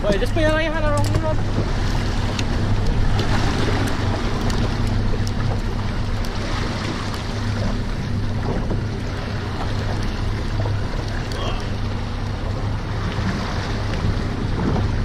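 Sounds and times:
water slapping against boat hull: 0.0s - 15.0s
wind buffeting microphone: 0.0s - 15.0s
light ticks: 0.9s - 1.2s, 2.3s - 6.4s.

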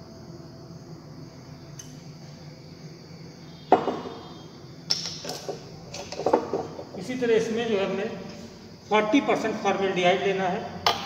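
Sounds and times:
glass bottle knocking on bench: 3.7s - 4.2s.

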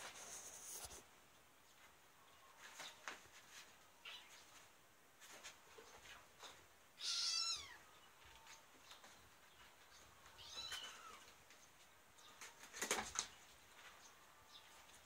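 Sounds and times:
kittens scuffling on futon: 0.0s - 1.0s, 1.7s - 15.0s
cat meow: 7.0s - 7.8s, 10.4s - 11.3s.

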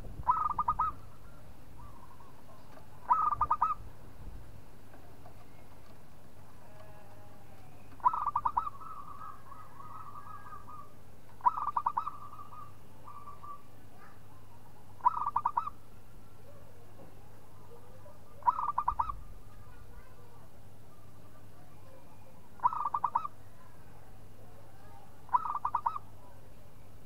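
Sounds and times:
dove cooing: 0.2s - 1.0s, 1.8s - 3.8s, 6.8s - 14.2s, 15.0s - 15.8s, 18.0s - 19.3s, 22.6s - 23.4s, 25.3s - 26.1s.

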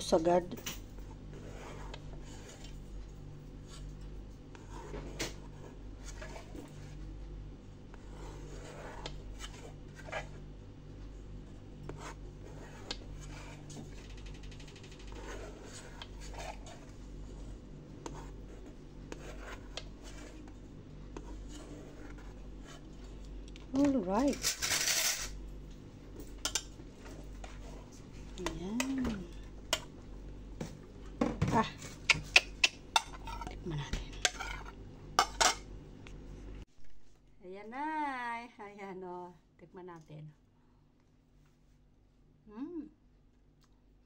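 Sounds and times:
steady low hum: 0.0s - 44.0s
knife scraping through cake: 1.3s - 2.8s, 3.6s - 7.0s, 7.9s - 10.4s, 11.9s - 14.0s, 14.9s - 22.9s, 31.9s - 33.6s, 34.2s - 35.6s.

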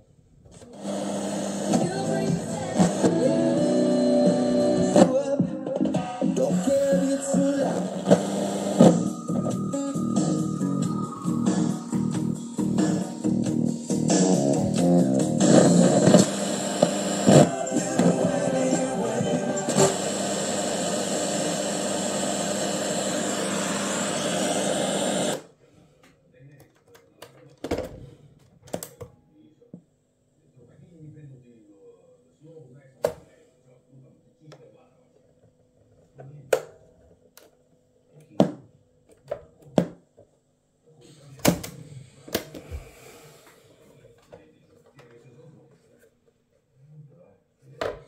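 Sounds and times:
radio static: 0.6s - 3.3s, 6.5s - 9.2s, 15.4s - 25.4s.

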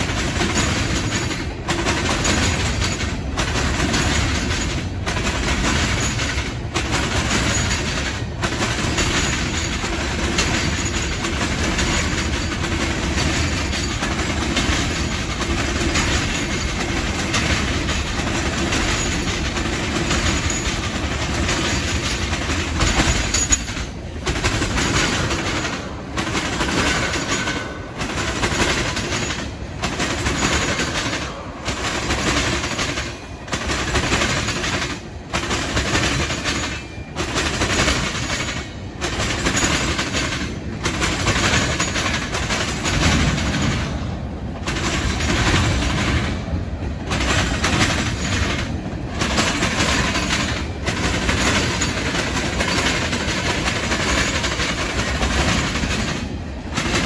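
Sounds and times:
train wheels clattering on rails: 0.0s - 57.0s.

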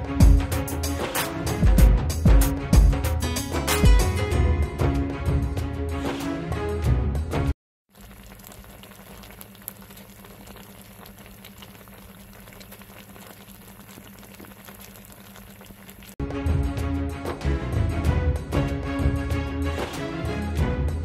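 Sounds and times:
sauce bubbling and sizzling: 7.9s - 16.2s.

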